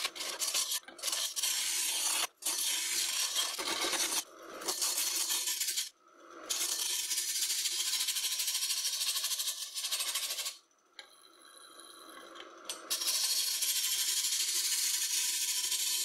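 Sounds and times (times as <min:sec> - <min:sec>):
chisel scraping wood on lathe: 0:00.0 - 0:05.9.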